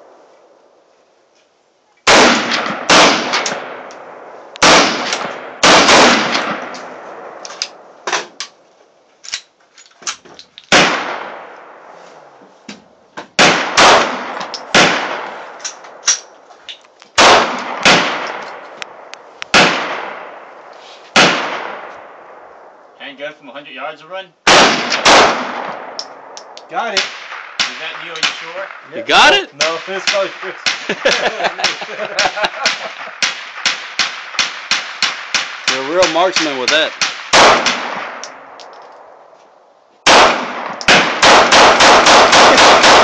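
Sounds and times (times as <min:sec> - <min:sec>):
pistol shots: 0:02.0 - 0:07.8, 0:10.7 - 0:11.6, 0:13.4 - 0:16.3, 0:17.2 - 0:20.4, 0:21.2 - 0:22.4, 0:24.4 - 0:38.6, 0:40.0 - 0:43.0
faint sharp cracks: 0:24.8 - 0:28.9, 0:32.5 - 0:39.5.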